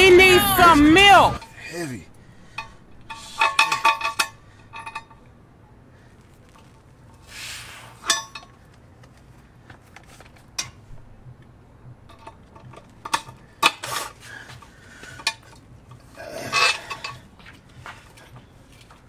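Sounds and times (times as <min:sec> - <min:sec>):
metal rattle: 0:02.1 - 0:05.4, 0:12.0 - 0:14.2
metal tools clinking and clanking: 0:02.5 - 0:05.4, 0:15.1 - 0:17.3.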